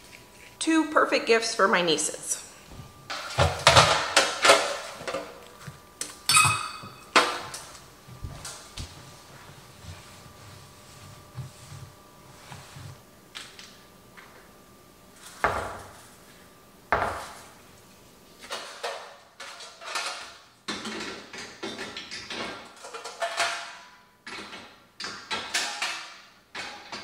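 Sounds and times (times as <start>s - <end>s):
dishes and metal pans clinking: 18.5s - 24.6s.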